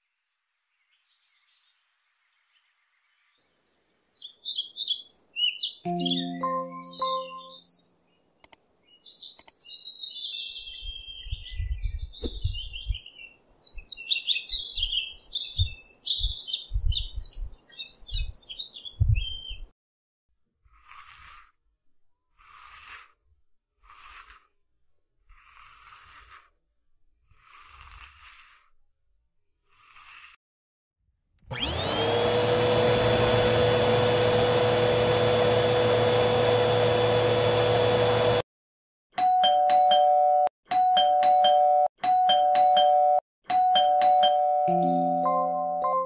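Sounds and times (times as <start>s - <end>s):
doorbell ringing: 5.9s - 7.6s, 39.2s - 46.0s
comb stroking: 20.6s - 21.6s, 22.3s - 23.2s, 23.8s - 24.6s, 25.2s - 28.8s, 29.6s - 30.4s
vacuum cleaner running: 31.4s - 38.4s.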